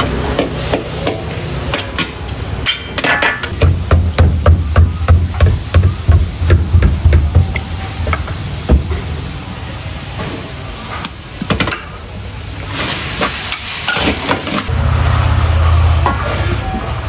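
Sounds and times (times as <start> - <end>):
liquid hissing in hot wok: 3.5 - 17.0
low rumble: 14.7 - 17.0.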